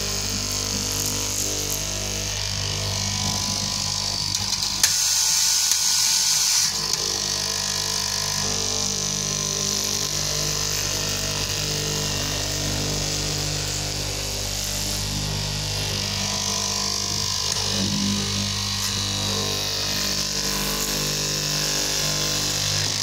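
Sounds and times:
cutting machine motor hum: 0.0s - 23.0s.

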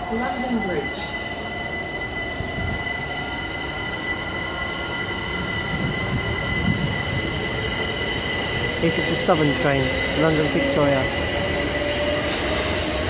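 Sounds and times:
steady high-pitched whine: 0.0s - 13.0s
train wheels rumbling on track: 0.0s - 13.0s.

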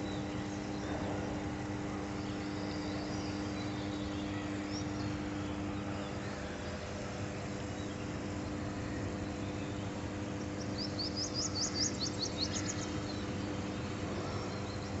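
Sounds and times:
transformer electrical hum: 0.0s - 15.0s
bird chirping: 7.6s - 15.0s.

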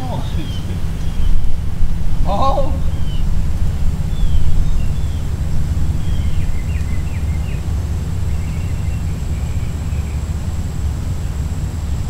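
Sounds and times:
faint bird chirps: 0.0s - 12.0s
wind rumble on microphone: 0.0s - 12.0s.

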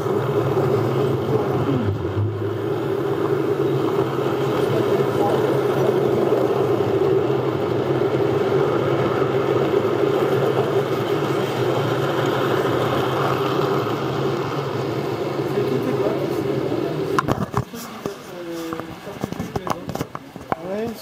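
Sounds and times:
model train wheels rumbling: 0.0s - 21.0s.

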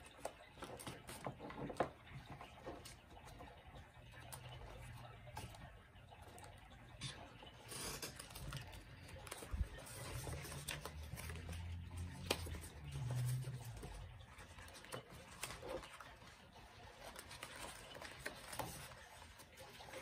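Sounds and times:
paper rustling and crinkling: 0.0s - 20.0s.

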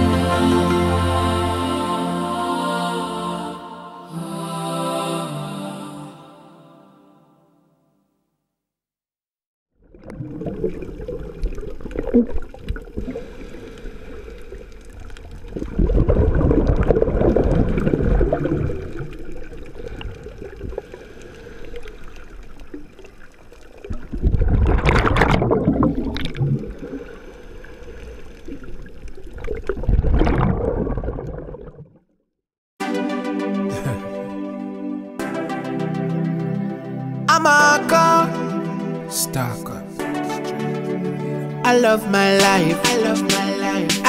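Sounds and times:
water bubbling underwater: 9.8s - 32.1s.

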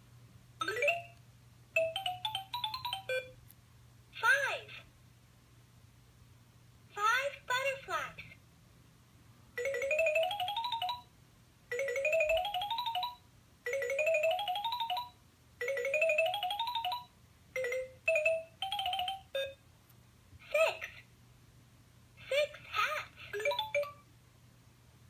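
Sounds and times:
toy phone electronic jingle: 0.6s - 1.2s, 1.8s - 3.4s, 9.6s - 11.1s, 11.7s - 19.6s, 23.4s - 24.0s.

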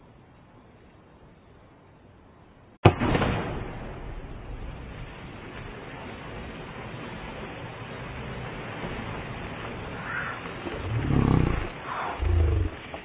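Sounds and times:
spray hissing onto water: 9.7s - 13.0s.

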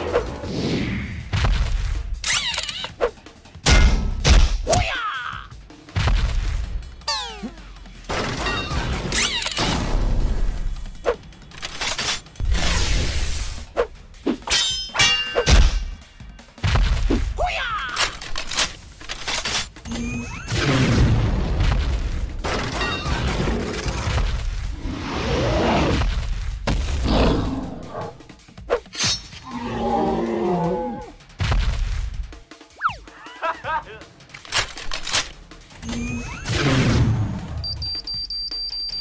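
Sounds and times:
background music: 0.0s - 39.0s.

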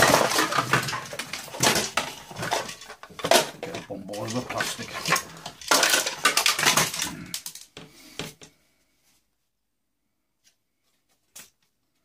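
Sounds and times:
clatter of small parts and tools: 0.0s - 8.6s.

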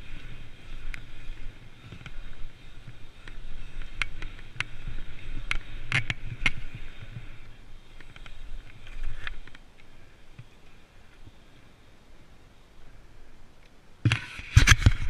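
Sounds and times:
bike rattling clicks: 0.0s - 11.3s
bike tyres rolling on asphalt: 0.0s - 15.0s.

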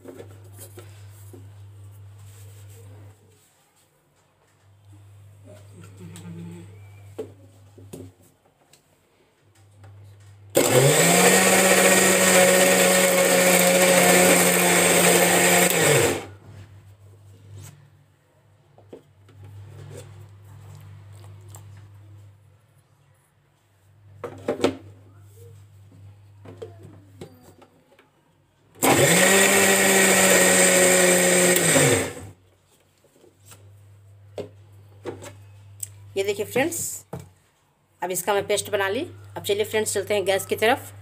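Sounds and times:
mixer grinder motor whining: 10.5s - 16.4s, 28.8s - 32.3s.

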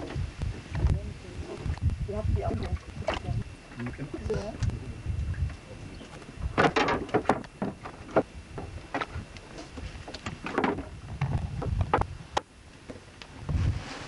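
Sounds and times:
knocks and clatter on wooden boat: 6.4s - 12.1s.

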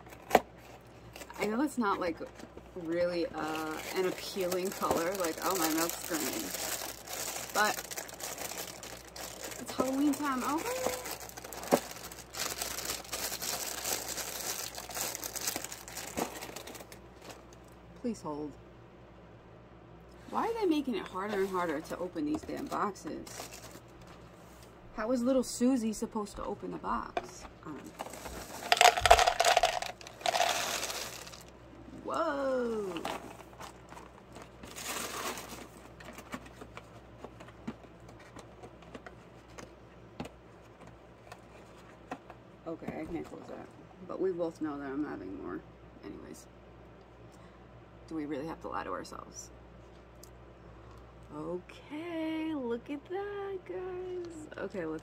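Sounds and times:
plastic bag crinkling: 3.2s - 17.6s, 22.6s - 24.0s, 27.9s - 31.5s, 33.0s - 36.6s.

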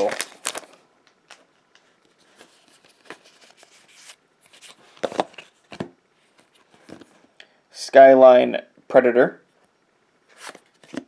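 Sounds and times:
cards rustling: 0.0s - 7.3s, 10.3s - 11.0s.

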